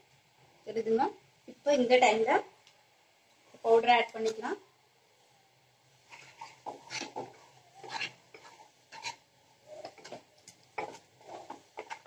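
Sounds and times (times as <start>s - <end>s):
wooden spatula scraping pan: 6.0s - 12.0s.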